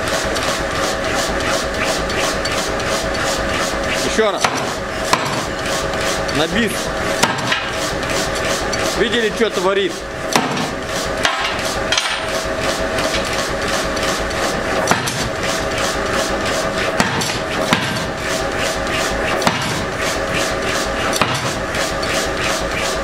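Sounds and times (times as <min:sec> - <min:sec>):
machine hum: 0:00.0 - 0:23.0
power hammer striking steel: 0:04.2 - 0:05.7, 0:07.2 - 0:07.8, 0:10.3 - 0:12.4, 0:14.8 - 0:15.4, 0:17.0 - 0:18.3, 0:19.3 - 0:20.0, 0:21.1 - 0:22.2.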